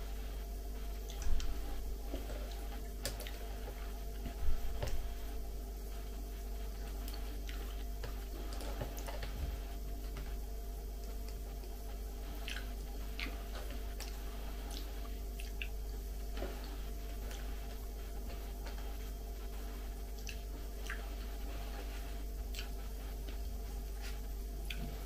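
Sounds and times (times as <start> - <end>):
steady low hum: 0.0 - 25.0
moist chewing: 6.0 - 10.4, 11.0 - 25.0.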